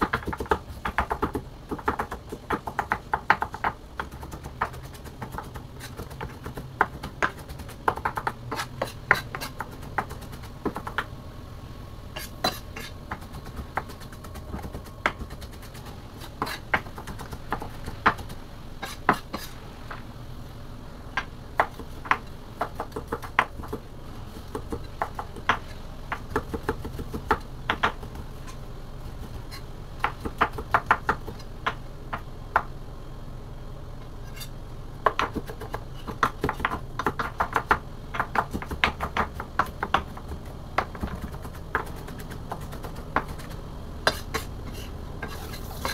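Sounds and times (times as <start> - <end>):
knife chopping on cutting board: 12.2 - 19.5, 34.4 - 45.9.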